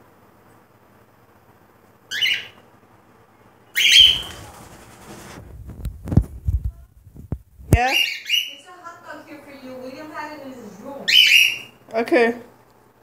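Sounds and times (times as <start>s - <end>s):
bird chirp: 2.1s - 2.6s, 3.7s - 4.4s, 7.8s - 8.7s, 11.0s - 11.8s
bird screech: 2.1s - 2.6s, 3.8s - 4.4s
low knocks and rustling: 4.0s - 7.8s.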